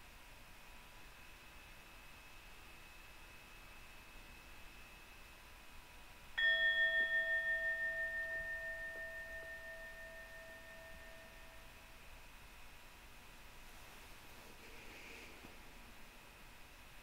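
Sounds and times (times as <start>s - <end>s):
bell chime ringing: 6.4s - 11.8s.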